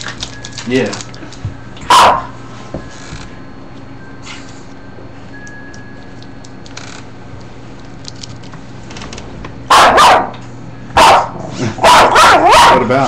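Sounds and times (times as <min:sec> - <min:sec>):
small dog barking: 0:01.9 - 0:02.3, 0:09.7 - 0:10.4, 0:11.0 - 0:12.9.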